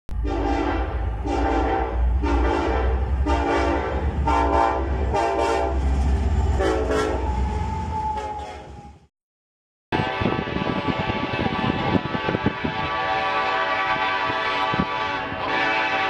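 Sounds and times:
locomotive air horn blasts: 0:00.1 - 0:05.9, 0:06.6 - 0:07.4, 0:10.0 - 0:16.0.

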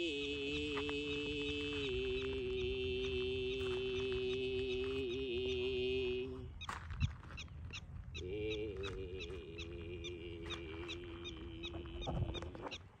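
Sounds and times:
man throat singing drone: 0:00.0 - 0:06.6, 0:08.2 - 0:12.8
prairie dog barking chirps: 0:06.6 - 0:13.0.

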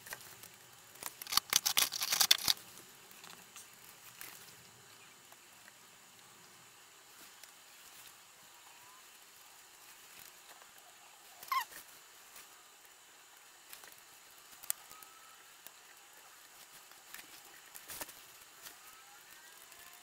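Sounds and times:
tools and wires clicking: 0:01.0 - 0:02.6.

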